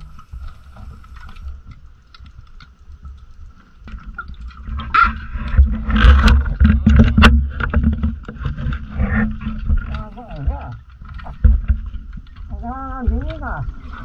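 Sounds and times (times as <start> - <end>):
underwater diver breathing: 0.0 - 1.7.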